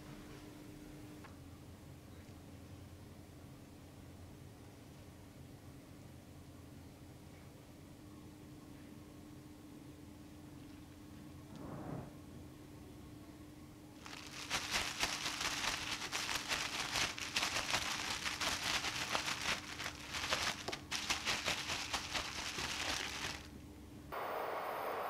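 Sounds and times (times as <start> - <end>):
plastic bag crinkling: 14.0 - 23.5.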